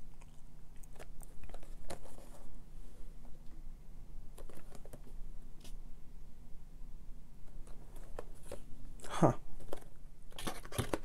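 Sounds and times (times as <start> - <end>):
fingers tapping and rustling cardboard: 9.6 - 11.0.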